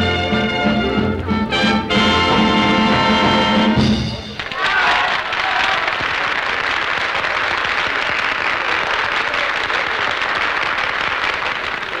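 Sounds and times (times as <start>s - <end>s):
crowd applauding: 4.2s - 12.0s.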